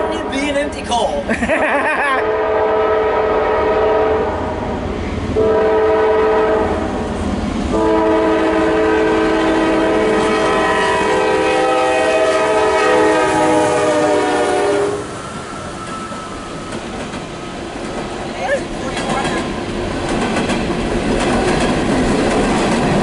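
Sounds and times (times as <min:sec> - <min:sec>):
locomotive air horn: 0:02.2 - 0:04.7, 0:05.4 - 0:06.9, 0:07.7 - 0:15.2
train wheels clattering: 0:15.7 - 0:23.0.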